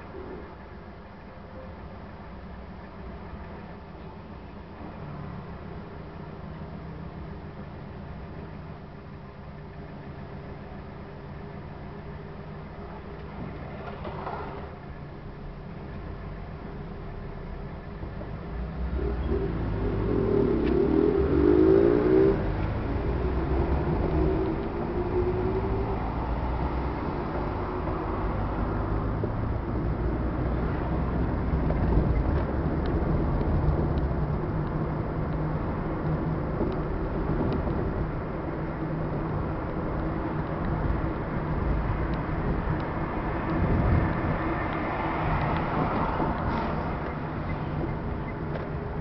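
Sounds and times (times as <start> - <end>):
car engine: 0.0 - 49.0
road noise inside car: 0.0 - 49.0.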